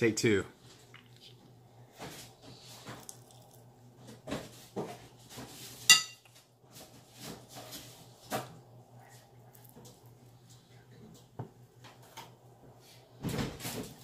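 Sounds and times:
utensil clinking on ceramic dish: 5.9 - 6.3.

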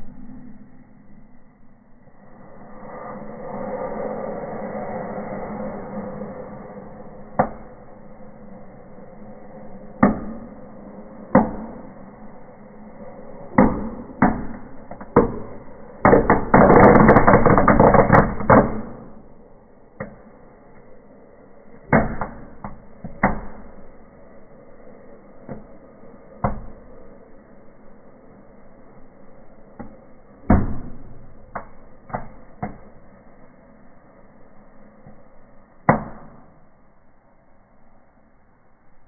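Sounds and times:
firecrackers banging: 13.6 - 19.2.

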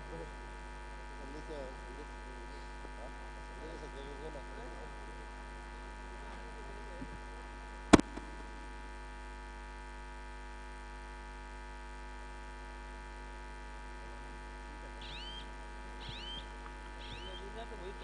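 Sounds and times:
electrical mains hum: 0.0 - 18.0
short high chirp: 16.1 - 17.4.

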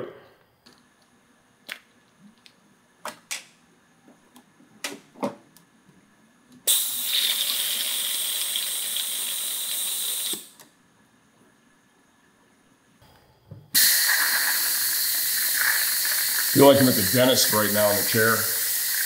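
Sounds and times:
pneumatic brake bleeder hissing: 6.7 - 10.6, 13.8 - 19.0.

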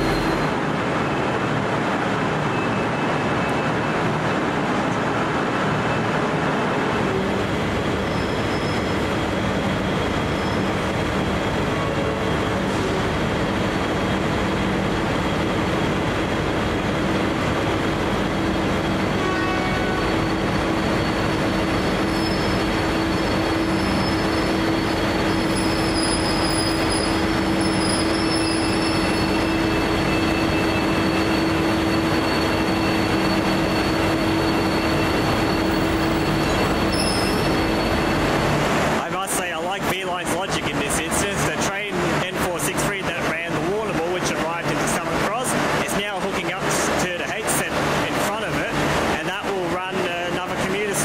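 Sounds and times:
high-pitched squeal: 0.0 - 0.6, 8.0 - 9.2, 19.4 - 38.3
diesel locomotive engine droning: 0.0 - 51.0.

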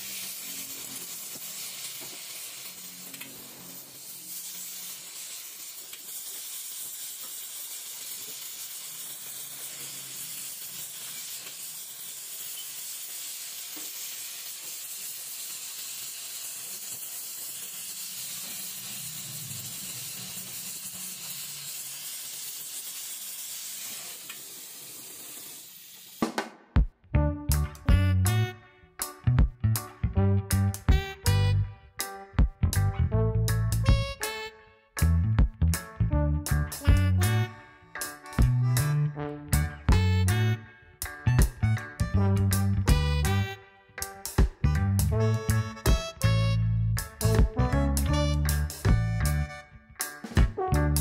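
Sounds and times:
welding torch flame hissing: 0.0 - 26.5.

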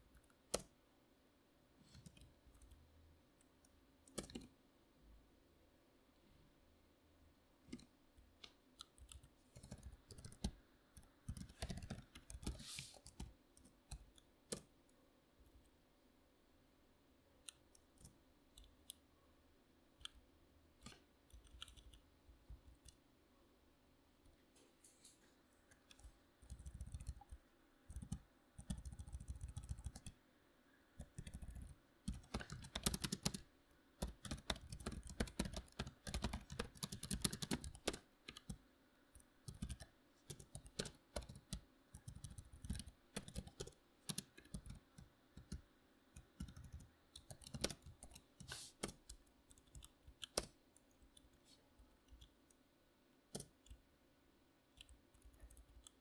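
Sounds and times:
typing on a computer keyboard: 4.1 - 4.5, 8.8 - 14.7, 20.8 - 22.1, 25.7 - 30.2, 31.0 - 33.4, 34.0 - 38.6, 39.2 - 45.6, 46.2 - 51.3, 54.8 - 56.0.

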